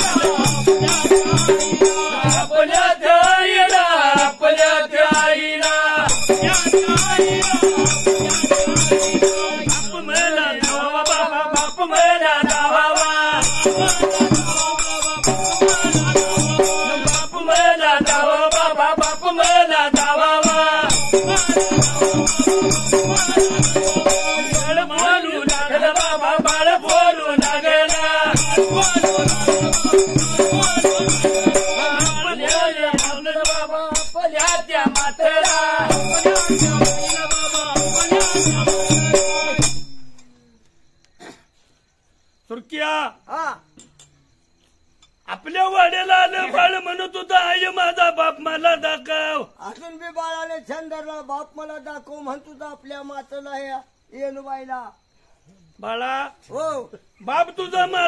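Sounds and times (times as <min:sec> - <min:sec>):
large drum beating steady rhythm: 0:00.0 - 0:02.6, 0:06.0 - 0:10.8, 0:13.4 - 0:18.3, 0:20.5 - 0:25.0, 0:27.4 - 0:32.4, 0:35.8 - 0:40.2
person singing: 0:00.0 - 0:04.4, 0:05.0 - 0:39.6
hand cymbals jingling: 0:00.0 - 0:40.4.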